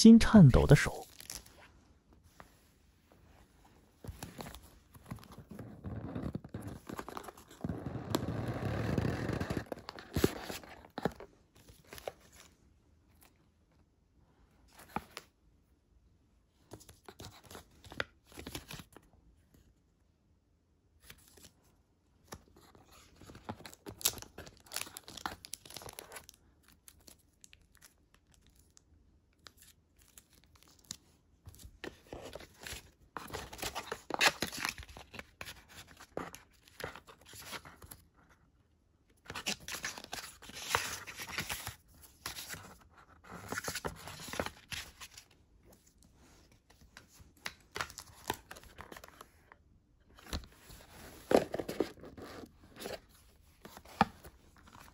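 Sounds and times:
packaging rustling and ripping: 32.2s - 38.0s.

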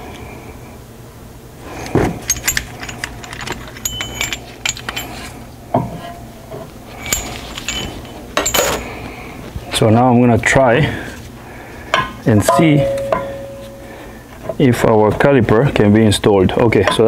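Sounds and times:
metal clinking and clanking: 1.7s - 9.0s, 12.0s - 13.9s
sharp metal knock: 12.0s - 13.6s.

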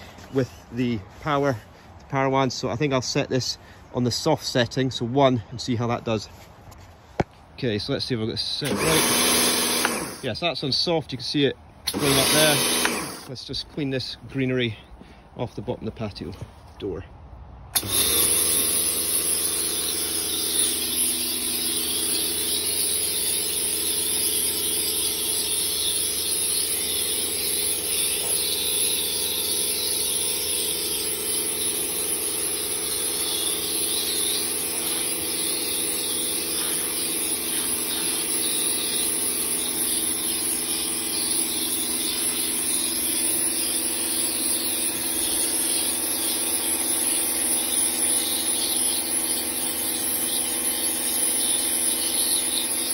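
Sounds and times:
pressure washer motor hum: 8.5s - 10.4s, 11.8s - 13.7s, 17.8s - 52.9s
water jet hissing: 17.8s - 52.9s.

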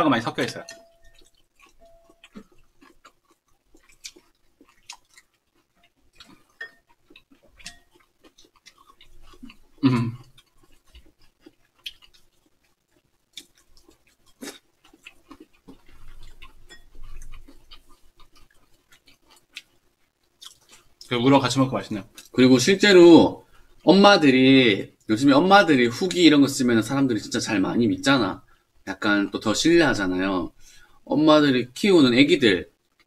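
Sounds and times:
people chewing: 0.4s - 21.2s.

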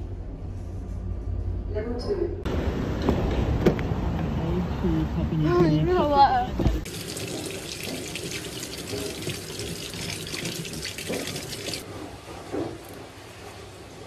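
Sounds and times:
tap water splashing into sink: 6.9s - 11.8s.

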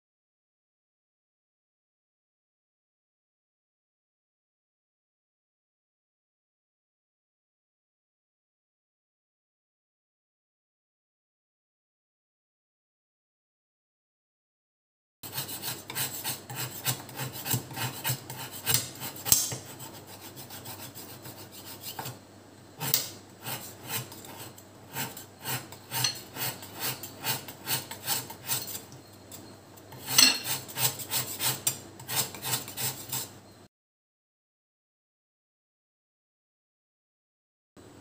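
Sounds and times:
knife scraping jaggery: 15.2s - 22.2s, 22.8s - 33.4s.

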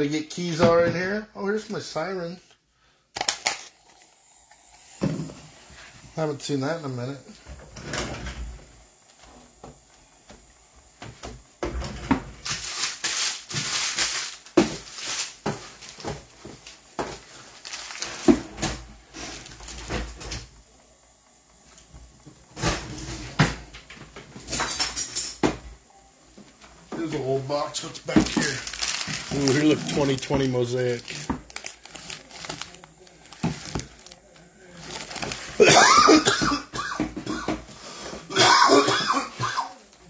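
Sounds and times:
rustling: 28.2s - 35.6s.

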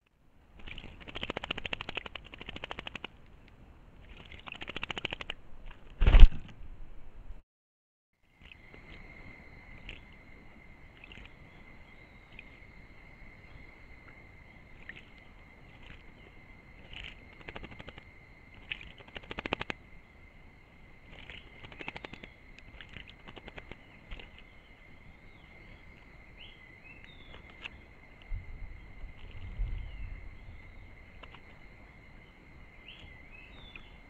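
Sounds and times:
bird splashing in water: 0.5s - 3.2s, 4.0s - 6.6s, 8.4s - 12.6s, 13.3s - 28.2s
bird chirps: 32.9s - 34.0s.

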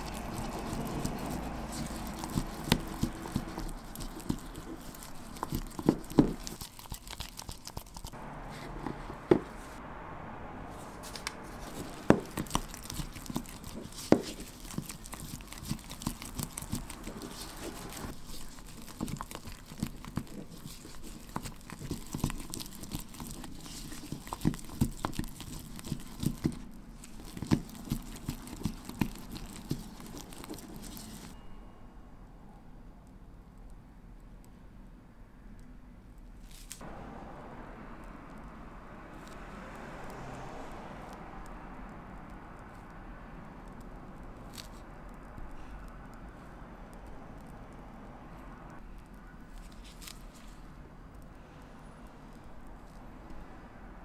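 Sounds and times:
spatula scraping wet paste: 0.0s - 9.7s, 11.0s - 31.4s.

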